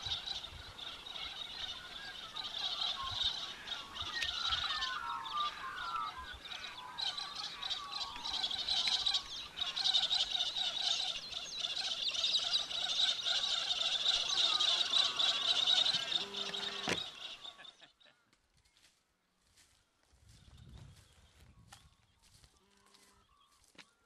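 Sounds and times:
warbling gliding bird calls: 0.0 - 18.1
chorus of birds calling: 0.0 - 18.2.

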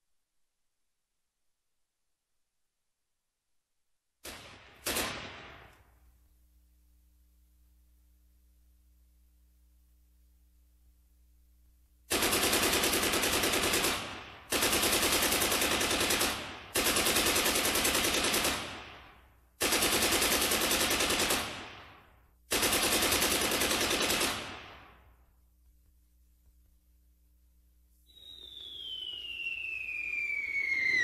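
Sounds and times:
automatic machine-gun fire: 4.2 - 5.8, 12.1 - 25.0.

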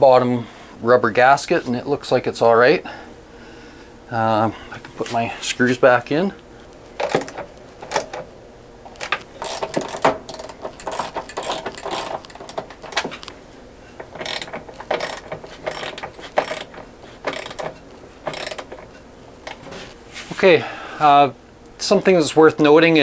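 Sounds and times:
socket ratchet clicking: 9.4 - 13.1, 14.1 - 18.9.

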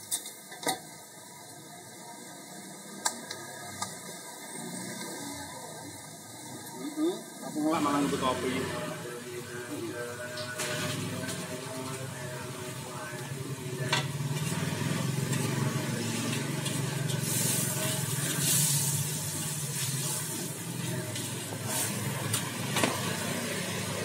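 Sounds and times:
noodles sizzling in a wok: 14.1 - 24.0.

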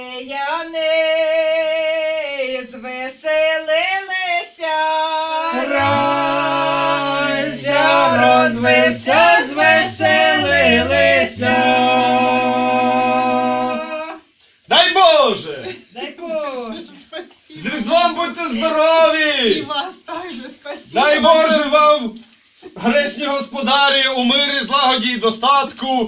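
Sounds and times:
women singing folk carol: 0.0 - 14.3
men's voices singing harmony: 5.5 - 13.9.

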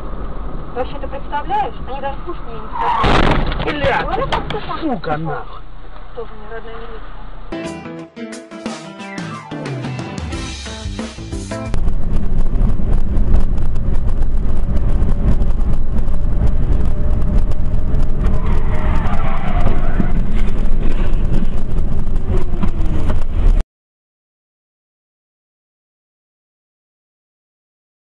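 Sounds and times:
car road and wind noise: 0.0 - 7.5, 11.7 - 23.6.

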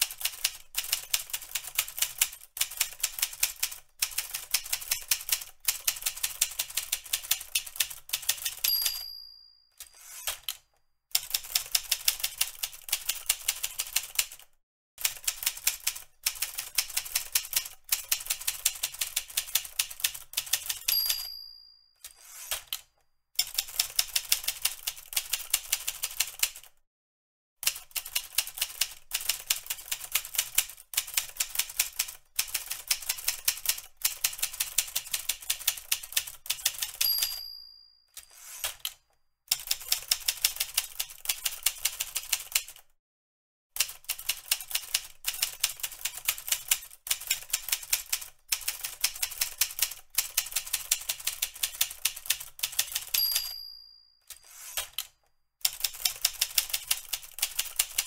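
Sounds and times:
typewriter bell ding: 8.3 - 10.5, 20.5 - 22.8, 36.6 - 38.9, 52.7 - 55.0.

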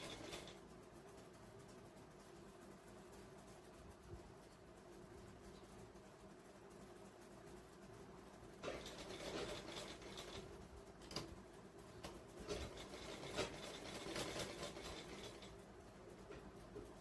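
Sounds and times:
shears rasping through fabric: 0.0 - 0.7, 8.6 - 10.5, 12.4 - 15.5.

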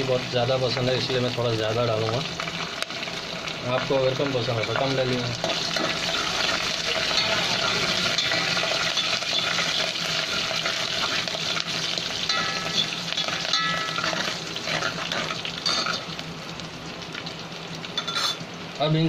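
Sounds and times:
spices sizzling in hot ghee: 0.0 - 19.0
steel ladle scraping pot: 5.4 - 11.6, 12.3 - 16.1, 18.0 - 18.4.

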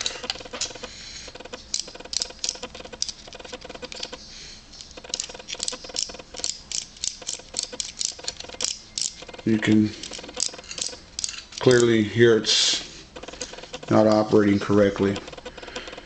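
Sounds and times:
servo gears clicking: 0.0 - 4.2, 4.8 - 12.0.

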